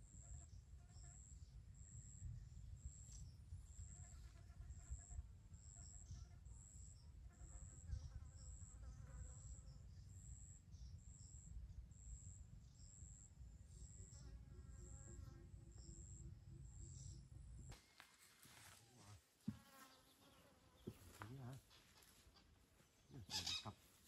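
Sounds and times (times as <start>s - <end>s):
insect chirping: 0.0s - 18.7s.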